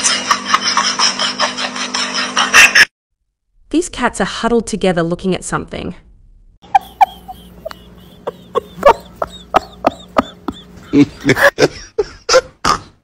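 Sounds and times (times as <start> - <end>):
cats chattering: 6.6 - 11.3.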